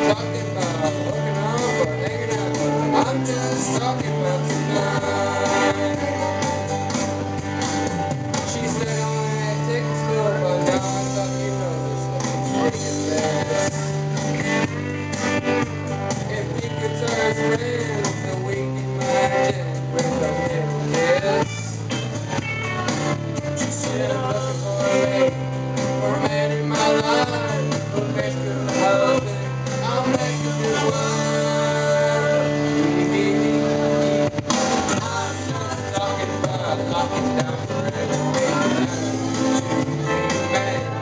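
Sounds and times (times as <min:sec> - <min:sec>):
man singing into microphone: 0:00.0 - 0:07.4, 0:08.3 - 0:14.6, 0:16.1 - 0:22.0, 0:23.6 - 0:41.0
backing track with guitar: 0:00.0 - 0:41.0.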